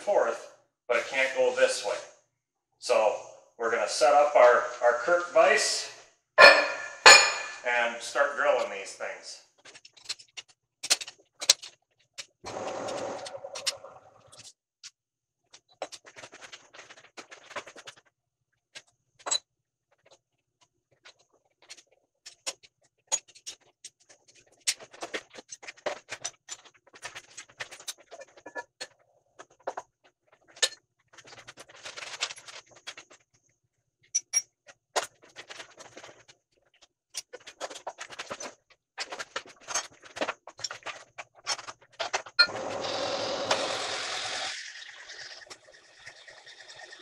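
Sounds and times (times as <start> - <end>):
machine running with high whine: 12.5 - 14.0.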